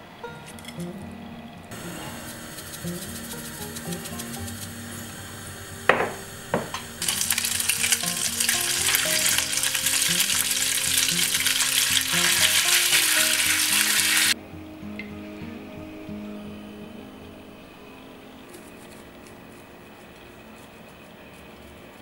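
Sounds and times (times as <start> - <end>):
wooden spatula stirring: 1.7 - 5.0
pasta sizzling in a pan: 1.7 - 14.4
sharp knocks: 5.9 - 6.9.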